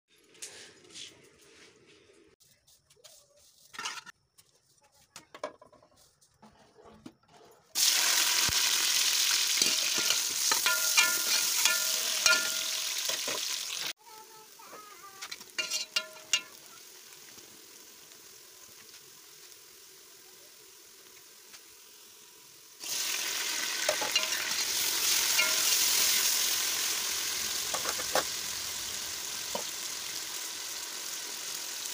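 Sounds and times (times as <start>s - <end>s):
onions sizzling in hot oil: 7.8s - 31.9s
metal ladle scraping pot: 9.6s - 13.4s, 15.3s - 16.5s, 23.8s - 26.1s.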